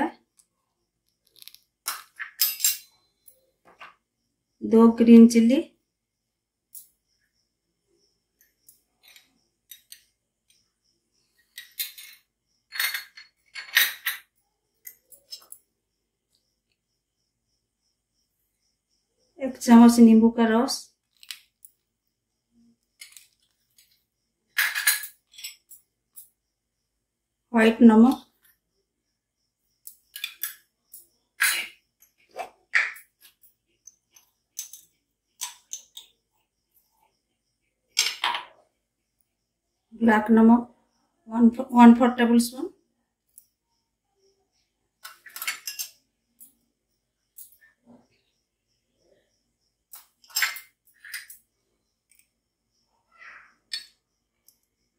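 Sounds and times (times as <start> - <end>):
spoon and containers clinking: 1.2 - 3.1, 11.4 - 15.6, 23.0 - 26.3, 29.8 - 30.7, 31.4 - 36.1, 45.0 - 46.5, 49.9 - 51.4, 53.7 - 54.0
kitchen utensils clinking: 1.4 - 3.0, 11.5 - 15.6, 24.6 - 25.8, 45.0 - 46.0, 50.2 - 51.4.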